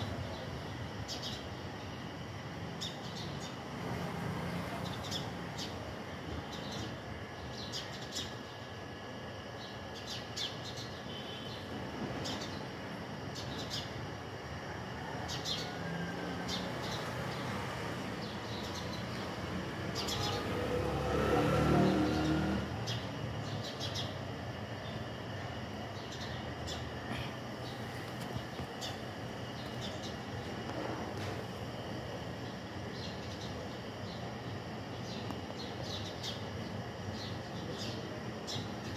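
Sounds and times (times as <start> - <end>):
steady outdoor hum: 0.0 - 38.9
small birds chirping: 0.1 - 4.0, 4.6 - 14.0, 16.5 - 38.9.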